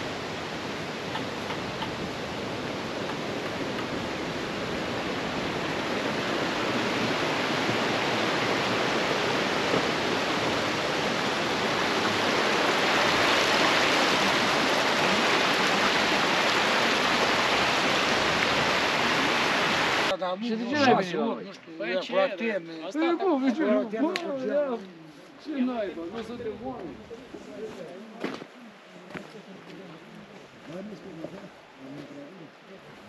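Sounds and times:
mountain stream rushing: 0:00.0 - 0:21.2.

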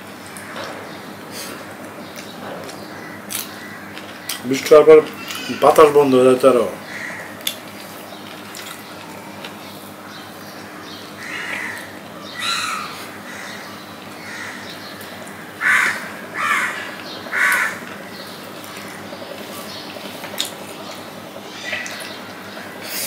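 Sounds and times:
crow cawing: 0:02.9 - 0:04.1, 0:06.8 - 0:07.4, 0:10.1 - 0:18.2.

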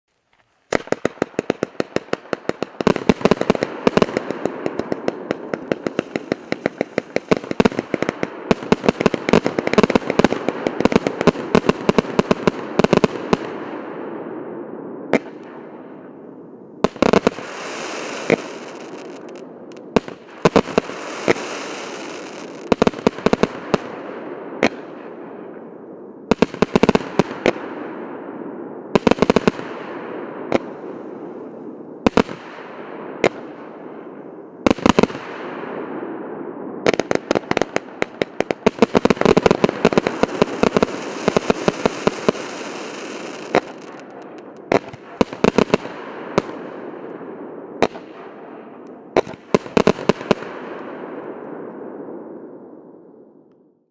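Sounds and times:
fireworks shots and bursts: 0:00.6 - 0:53.8
crackle and hiss of burning stars: 0:16.5 - 0:24.0, 0:37.0 - 0:46.8.

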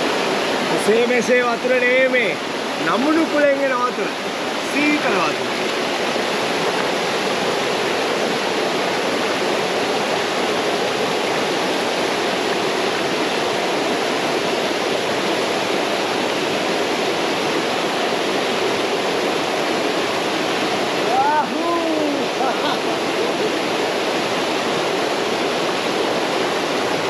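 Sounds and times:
stream rushing over rocks: 0:00.0 - 0:27.0.

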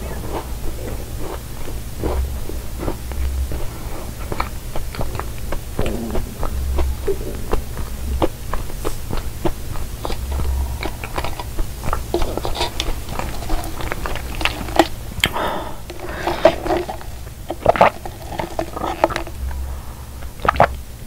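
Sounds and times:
mouth chewing with wet clicks: 0:00.0 - 0:21.0
sipping through a straw: 0:10.0 - 0:20.8.

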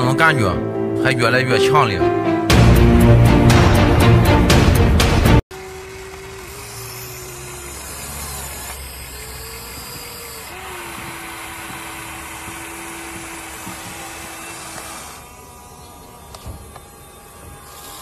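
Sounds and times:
electric motors whining: 0:05.5 - 0:18.0.

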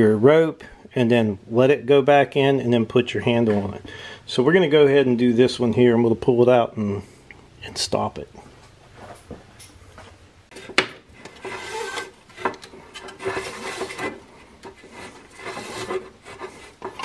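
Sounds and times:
starter rope rubbing and scraping: 0:10.5 - 0:17.0.

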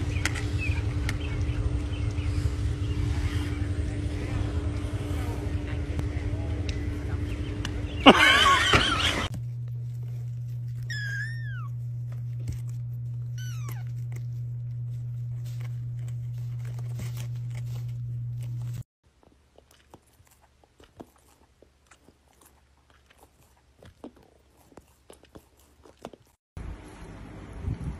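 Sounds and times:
steady low hum: 0:00.0 - 0:27.9
kitten mewing: 0:10.8 - 0:11.8, 0:13.3 - 0:14.2.

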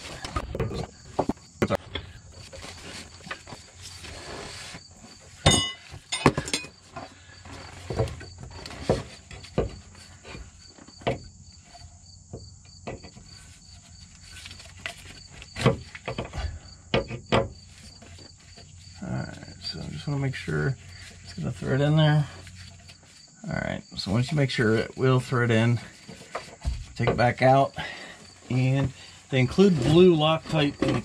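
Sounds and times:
metal knocks and clanks: 0:05.4 - 0:09.9.

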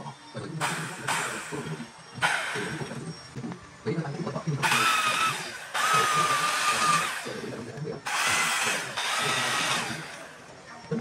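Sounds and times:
power carving tool cutting wood: 0:00.6 - 0:03.2, 0:04.6 - 0:10.5.

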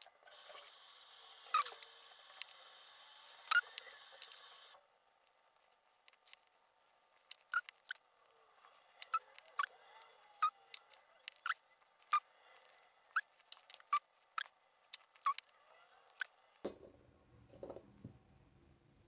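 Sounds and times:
small metal clicks and taps: 0:05.5 - 0:16.8.

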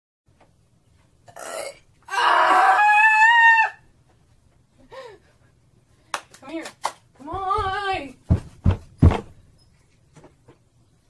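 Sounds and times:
woman shrieking: 0:02.1 - 0:03.8.

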